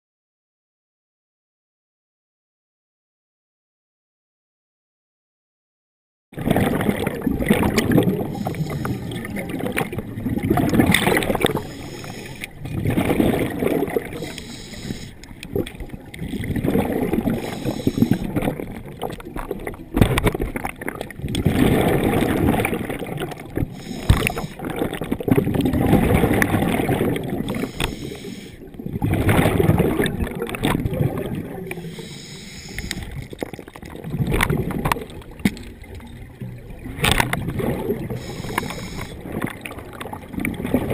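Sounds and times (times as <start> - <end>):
diver inhaling: 8.2 - 9.3, 11.4 - 12.6, 14.1 - 15.3, 17.3 - 18.4, 23.6 - 24.6, 27.4 - 28.6, 31.7 - 33.3, 38.0 - 39.2.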